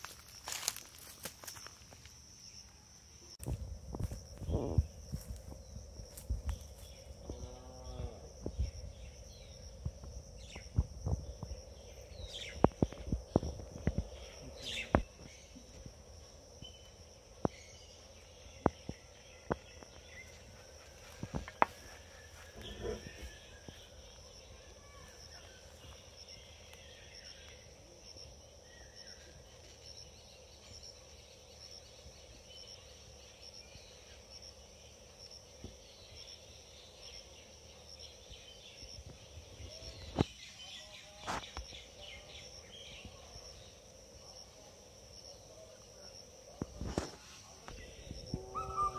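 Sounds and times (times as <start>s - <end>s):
insects chirping: 0.0s - 48.9s
faint bird calls: 47.7s - 48.9s.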